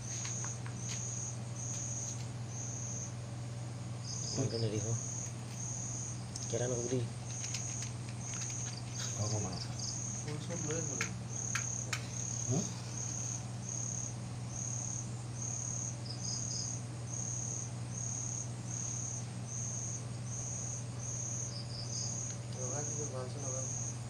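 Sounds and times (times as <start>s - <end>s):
insects chirping: 0.0s - 24.0s
steady low hum: 0.0s - 24.0s
sharp clicks: 7.2s - 9.2s, 10.2s - 12.2s.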